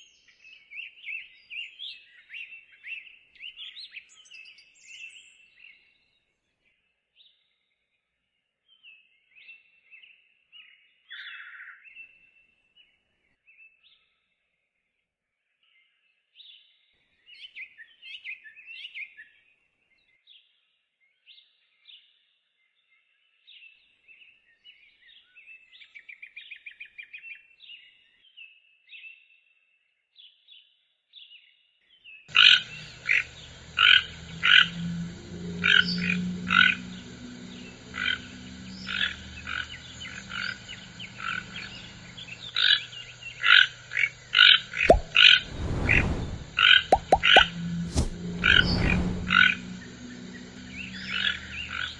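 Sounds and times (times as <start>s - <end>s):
high bird chirps and trills: 32.3s - 45.6s, 46.4s - 51.9s.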